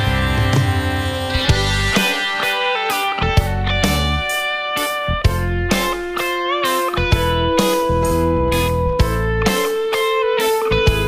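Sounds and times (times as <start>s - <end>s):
rock music: 0.0s - 11.0s.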